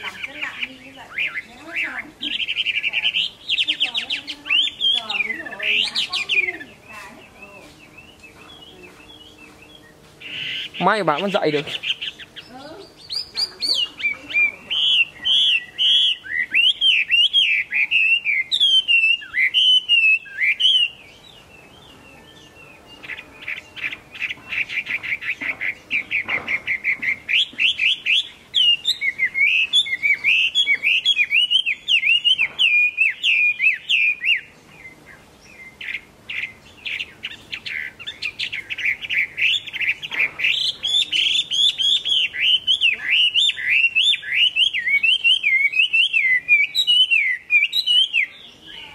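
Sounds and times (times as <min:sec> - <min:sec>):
bird singing whistled song: 0:00.0 - 0:48.9.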